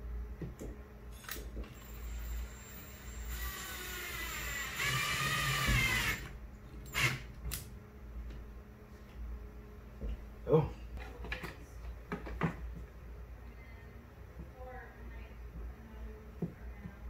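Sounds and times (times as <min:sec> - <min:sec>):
cordless drill driving screw: 0:01.2 - 0:06.3, 0:06.9 - 0:07.2.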